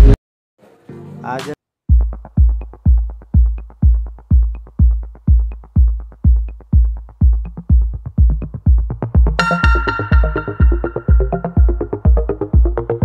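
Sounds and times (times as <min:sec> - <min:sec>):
electronic dance music: 0:01.3 - 0:13.0.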